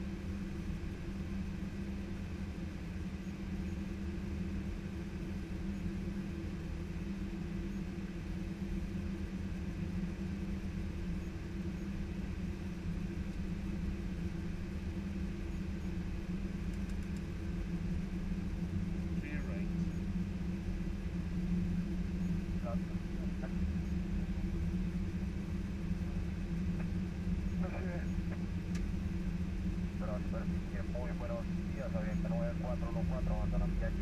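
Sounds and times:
aircraft engines idling: 0:00.0 - 0:34.0
cabin fans humming: 0:00.0 - 0:34.0.

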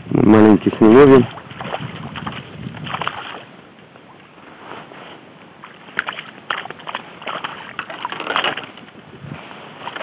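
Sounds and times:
water splashing in shallows: 0:00.6 - 0:03.5, 0:05.6 - 0:10.0.

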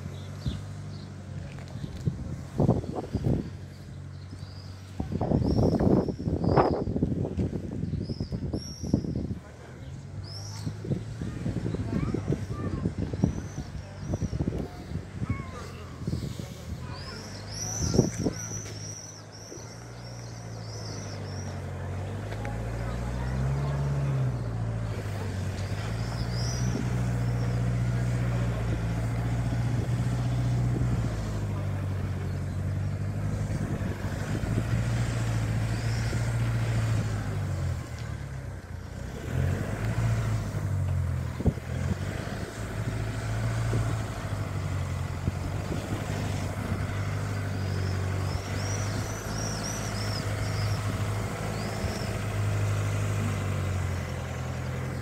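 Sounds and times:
wind buffeting microphone: 0:01.7 - 0:09.4, 0:10.2 - 0:18.8, 0:32.4 - 0:37.3, 0:40.7 - 0:53.8.

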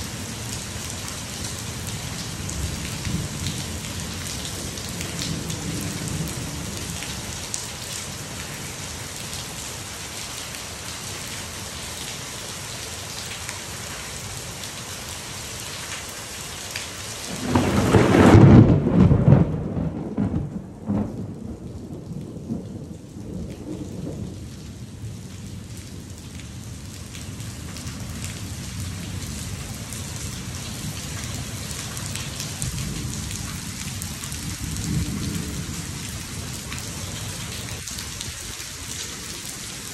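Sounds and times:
heavy rain on pool and concrete: 0:00.0 - 0:39.9
thunder clap: 0:17.3 - 0:24.4.

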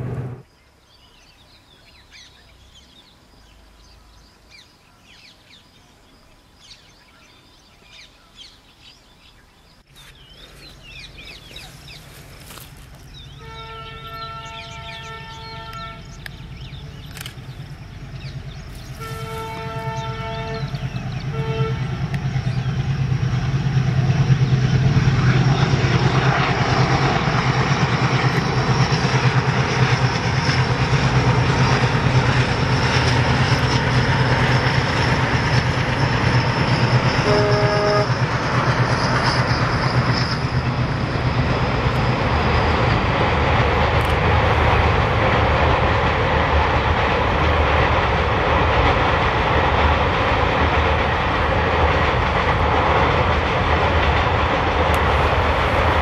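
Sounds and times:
locomotive engine drone: 0:00.0 - 0:00.5, 0:10.0 - 0:56.0
locomotive horn: 0:13.3 - 0:16.2, 0:18.9 - 0:22.2, 0:37.2 - 0:38.4.

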